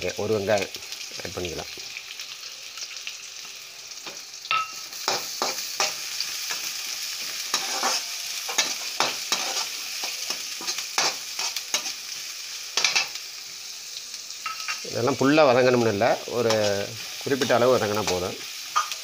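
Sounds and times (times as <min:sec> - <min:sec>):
onions sizzling in oil: 0:00.0 - 0:19.0
metal spatula scraping pan: 0:07.5 - 0:12.0.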